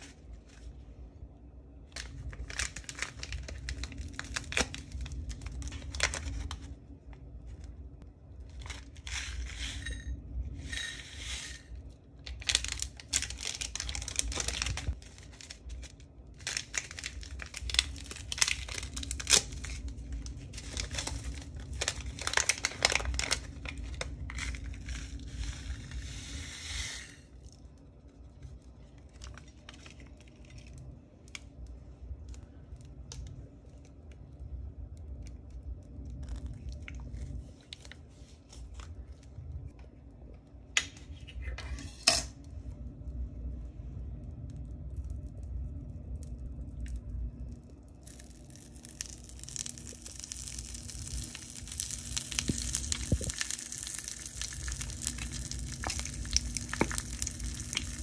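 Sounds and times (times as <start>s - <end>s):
candy wrappers crinkling: 2.0s - 6.8s, 8.4s - 9.8s, 11.7s - 26.4s, 27.2s - 34.0s, 46.8s - 58.0s.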